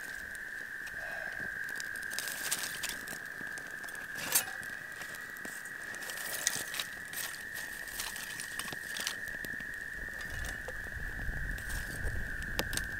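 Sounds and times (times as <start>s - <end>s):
wood fire crackling and popping: 0.0s - 12.9s.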